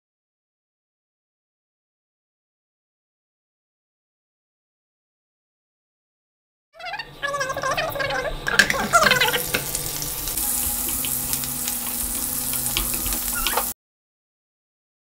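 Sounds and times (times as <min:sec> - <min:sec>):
food sizzling in hot oil: 0:08.5 - 0:13.8
oil crackles: 0:08.6 - 0:13.8.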